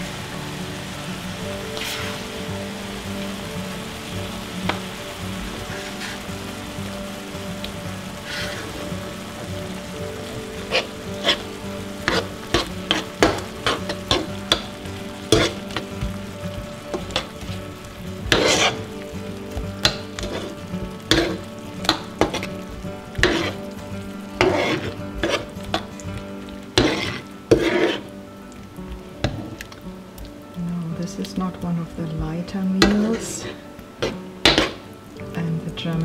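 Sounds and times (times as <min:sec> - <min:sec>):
sauce sizzling: 0:00.0 - 0:36.0
spoon scraping a frying pan: 0:01.7 - 0:02.5, 0:05.6 - 0:06.3, 0:08.2 - 0:09.6, 0:10.2 - 0:17.6, 0:18.2 - 0:28.2, 0:32.8 - 0:34.9.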